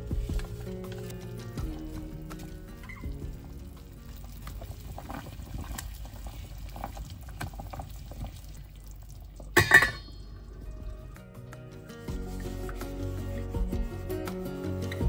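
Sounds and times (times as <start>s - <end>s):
broth bubbling at a boil: 0.0s - 11.3s.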